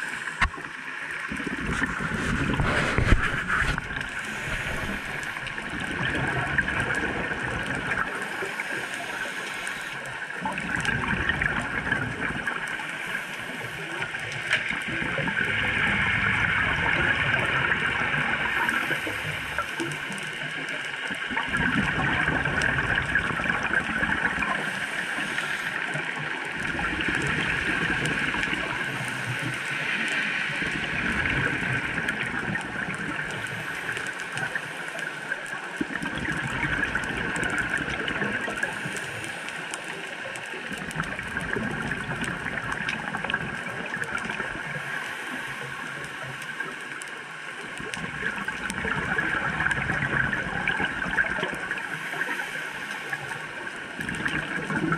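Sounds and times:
exhaled bubbles rumbling underwater: 0:00.0 - 0:54.9
steady underwater hiss: 0:00.0 - 0:54.9
regulator inhalation hiss: 0:08.4 - 0:10.0, 0:24.6 - 0:25.9.

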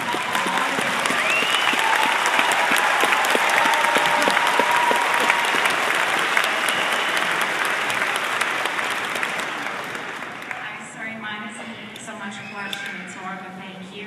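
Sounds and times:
large audience applauding: 0:00.0 - 0:10.7.

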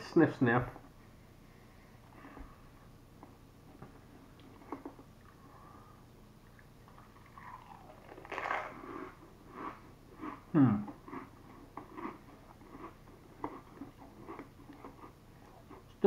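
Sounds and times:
crisps crunching while chewed: 0:07.3 - 0:16.0.

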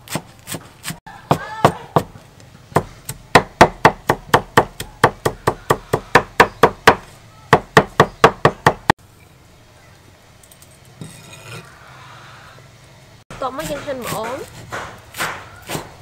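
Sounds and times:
cleaver chopping on wooden board: 0:00.1 - 0:08.9, 0:13.6 - 0:16.0.

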